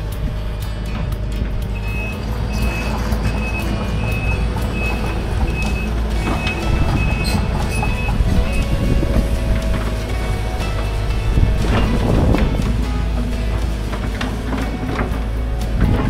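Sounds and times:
excavator diesel engine running: 0:00.0 - 0:16.0
travel alarm beeping: 0:01.6 - 0:14.1.

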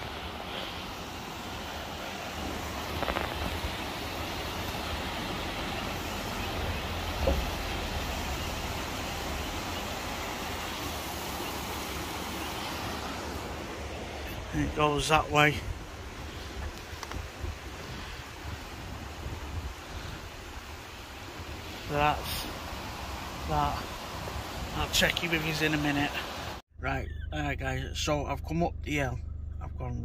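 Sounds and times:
water rushing down spillway: 0:00.0 - 0:26.6.

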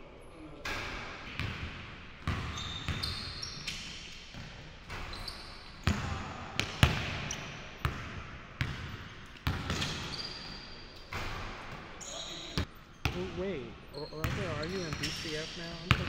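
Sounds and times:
sneaker squeaks: 0:02.2 - 0:06.2, 0:08.6 - 0:16.0
basketball bouncing on hardwood floor: 0:07.8 - 0:10.0.

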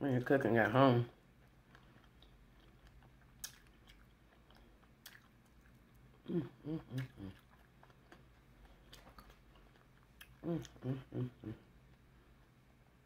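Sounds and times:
close-miked chewing: 0:01.3 - 0:12.0
murmured voice: 0:10.4 - 0:11.7.

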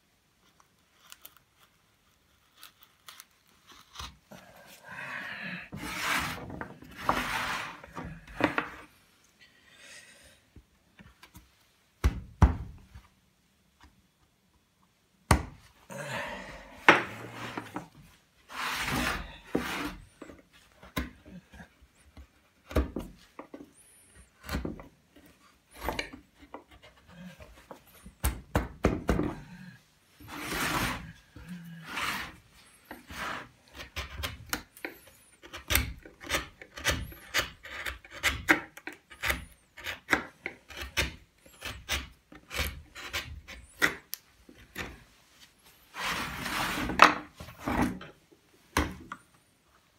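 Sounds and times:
carving tools cutting wood: 0:05.7 - 0:07.8, 0:30.2 - 0:44.0.

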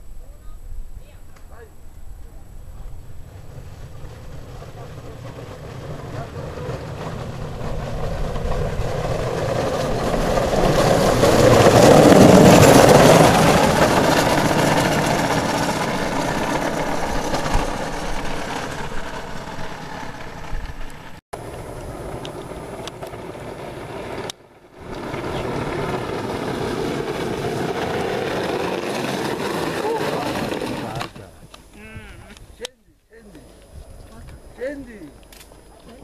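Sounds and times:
soap box car rolling past: 0:02.8 - 0:31.3.

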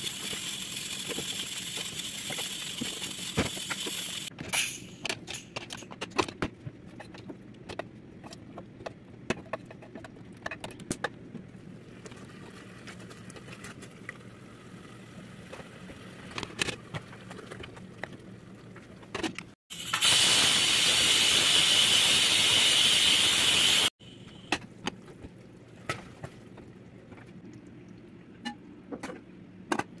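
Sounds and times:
loud even hiss: 0:19.7 - 0:23.9.

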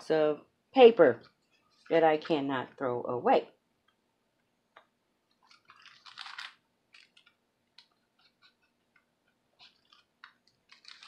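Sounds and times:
paper pages rustling and crackling: 0:05.3 - 0:11.0.

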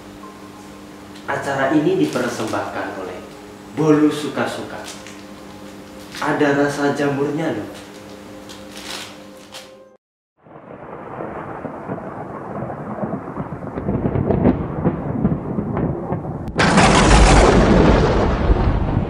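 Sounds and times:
thunder rumbling: 0:10.4 - 0:19.0
loud thunderclap: 0:10.5 - 0:19.0.

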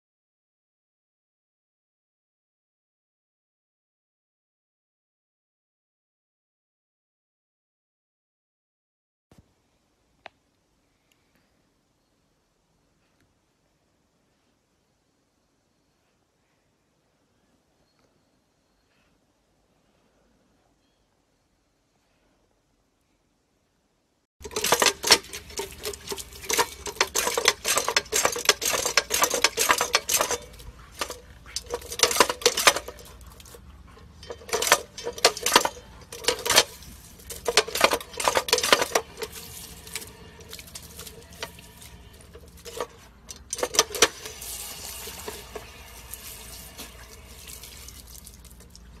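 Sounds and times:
dog lapping water: 0:24.4 - 0:41.6, 0:43.6 - 0:49.0
water spurting and splashing: 0:43.9 - 0:49.0.

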